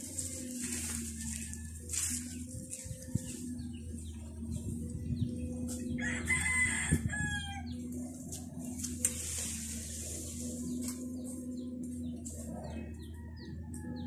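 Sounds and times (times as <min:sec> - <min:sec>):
steady low hum: 0:00.0 - 0:14.0
rooster crowing: 0:05.9 - 0:07.8.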